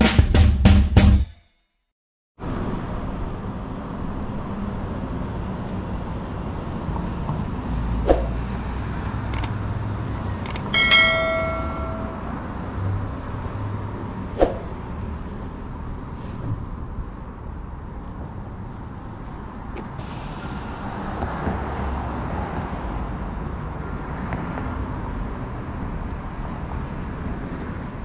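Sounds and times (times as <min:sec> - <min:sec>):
cars passing: 0:02.4 - 0:28.0
sharp clicks: 0:09.3 - 0:09.6, 0:10.4 - 0:10.7
short bright ding: 0:10.8 - 0:12.4.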